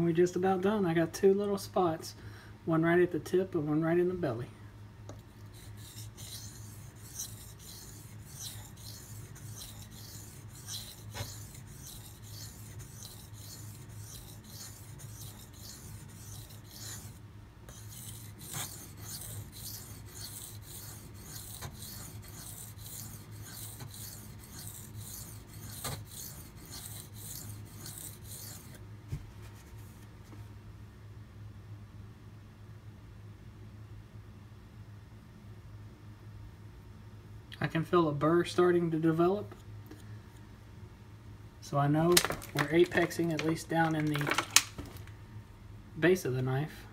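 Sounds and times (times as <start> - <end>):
knife scraping on water stone: 5.4 - 28.8, 42.1 - 44.7.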